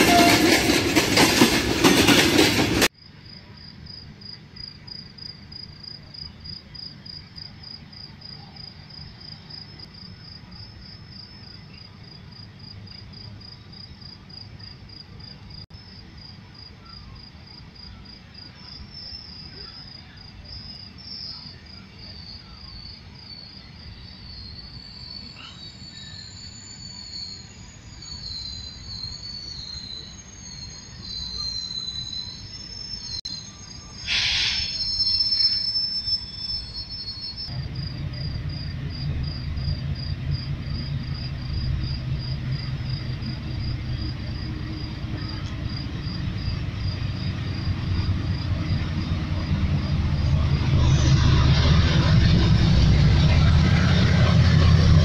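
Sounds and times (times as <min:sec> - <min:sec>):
crickets chirping: 0:00.0 - 0:55.0
brief hiss: 0:34.0 - 0:35.0
locomotive engine rumble: 0:37.5 - 0:55.0.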